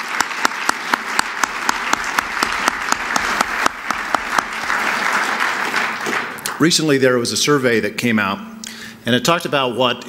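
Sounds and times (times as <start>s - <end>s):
single sharp claps: 0.0s - 6.6s
crowd applauding: 0.0s - 6.9s.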